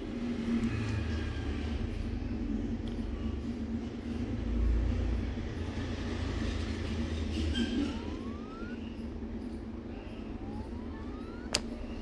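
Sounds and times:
thin rising whine: 6.9 - 12.0.

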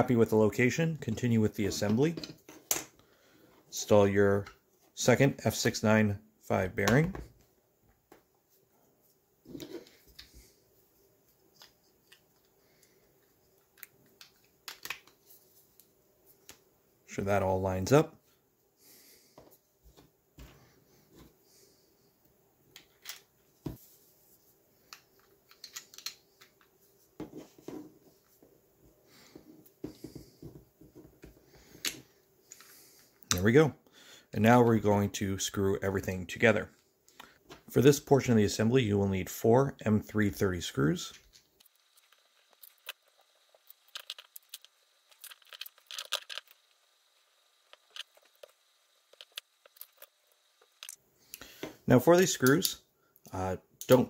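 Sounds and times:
plastic parts clicking: 13.6 - 15.2, 24.9 - 26.6.

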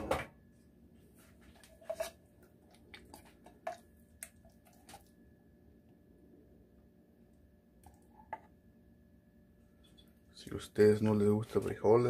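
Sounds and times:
spoon scraping metal pot: 1.7 - 2.2.

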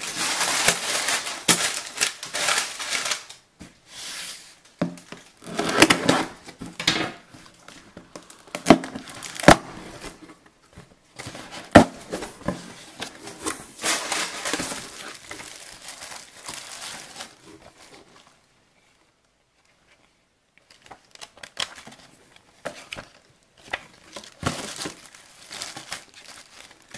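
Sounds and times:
plastic wrapping crinkling: 0.0 - 3.8, 4.4 - 19.0, 20.6 - 26.9
tape tearing: 5.4 - 6.5, 8.2 - 10.2.

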